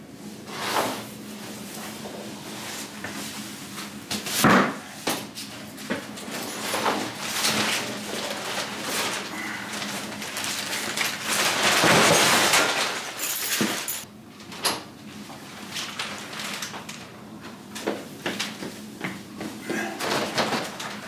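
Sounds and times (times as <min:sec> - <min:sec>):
cardboard and plastic rustling: 0:05.8 - 0:14.6, 0:15.4 - 0:18.7, 0:19.7 - 0:21.0.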